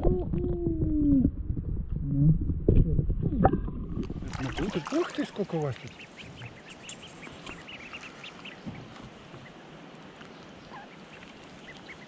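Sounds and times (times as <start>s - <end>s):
ducklings peeping: 4.4s - 12.0s.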